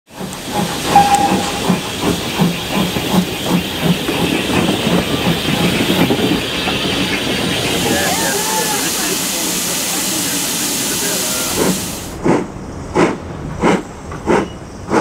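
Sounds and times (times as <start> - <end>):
steam locomotive chuffing: 0.1 - 15.0
steam hissing: 0.2 - 12.4
short high tone: 0.9 - 1.8.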